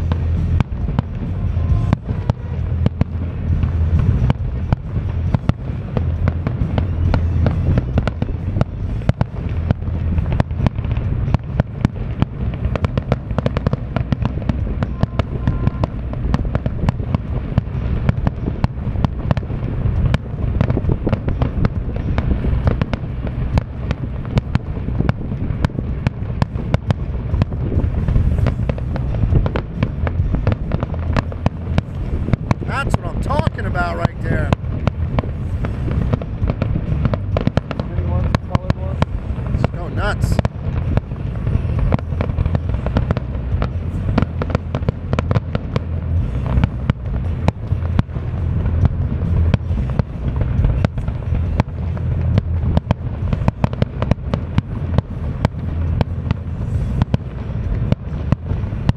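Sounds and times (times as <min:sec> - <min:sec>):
fireworks bangs and crackles: 0:00.0 - 0:58.9
low rumble: 0:00.0 - 0:58.9.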